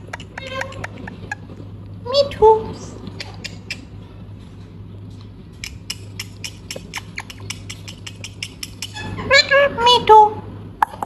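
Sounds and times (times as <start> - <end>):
steady low hum: 0.0 - 11.0
parakeet beak and tongue clicks: 3.2 - 3.9, 5.6 - 9.0.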